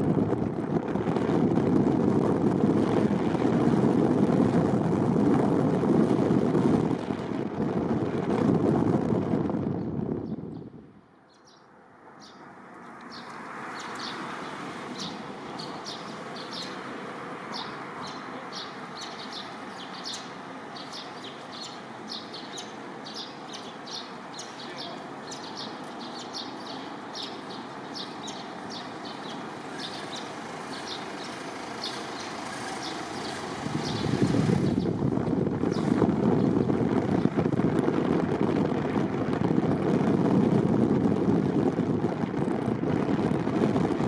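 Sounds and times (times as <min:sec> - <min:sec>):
small birds chirping: 0:10.2 - 0:37.4.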